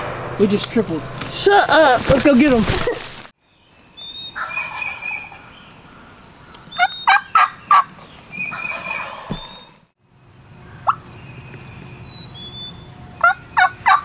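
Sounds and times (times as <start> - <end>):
turkeys gobbling: 4.4 - 5.5, 6.8 - 9.8, 13.2 - 14.0.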